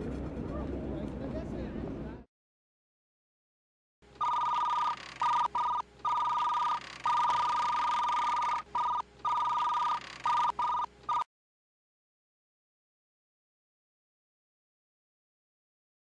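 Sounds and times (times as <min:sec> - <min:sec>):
electronic two-tone beeping: 0:04.2 - 0:11.3.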